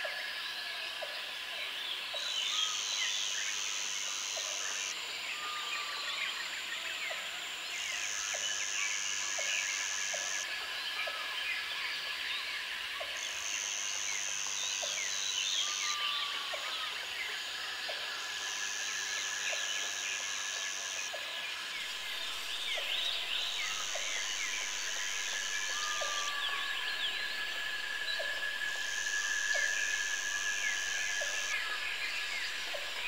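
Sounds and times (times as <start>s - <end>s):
thin insect trill: 0.0s - 33.0s
high insect buzz: 17.3s - 33.0s.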